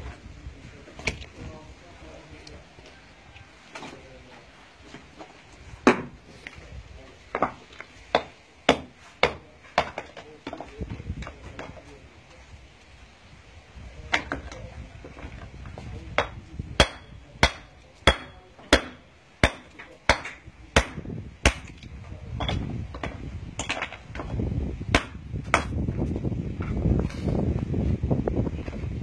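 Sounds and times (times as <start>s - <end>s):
hammer striking stone: 7.4s - 10.6s, 16.2s - 21.8s, 25.0s - 25.8s.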